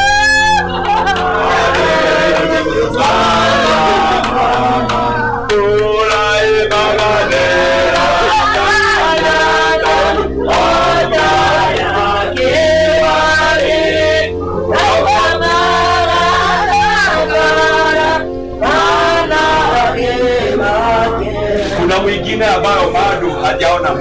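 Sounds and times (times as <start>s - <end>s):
choir singing: 0.0s - 24.0s
steady held notes: 0.0s - 24.0s.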